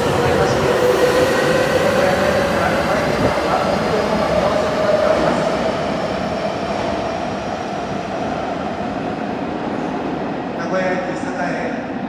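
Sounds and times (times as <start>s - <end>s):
steady train whine: 0.0s - 12.0s
subway train rumble: 0.0s - 12.0s.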